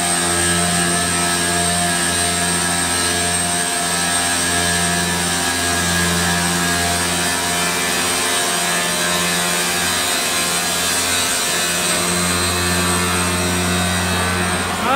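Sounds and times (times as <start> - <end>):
low motor hum: 10.8 - 14.9.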